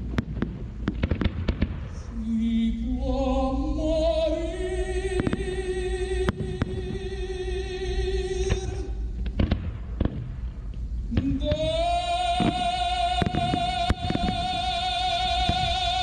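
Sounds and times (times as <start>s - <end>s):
fireworks banging: 0.0s - 2.4s, 5.1s - 16.0s
person singing with vibrato: 2.0s - 9.2s, 11.1s - 16.0s.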